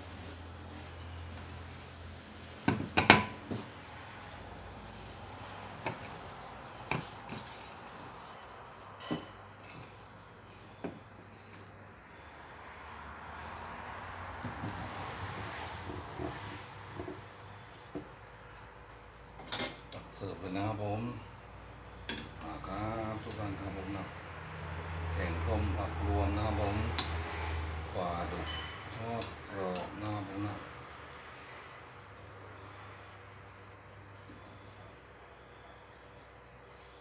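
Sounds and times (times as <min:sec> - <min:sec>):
cricket trilling: 0:00.0 - 0:37.0
objects knocking and clattering: 0:02.6 - 0:03.8, 0:06.8 - 0:07.6, 0:09.0 - 0:09.9.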